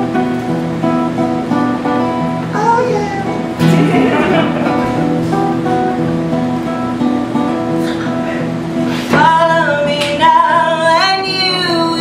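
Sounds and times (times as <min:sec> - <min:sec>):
acoustic guitars playing: 0:00.0 - 0:12.0
woman singing: 0:09.1 - 0:12.0.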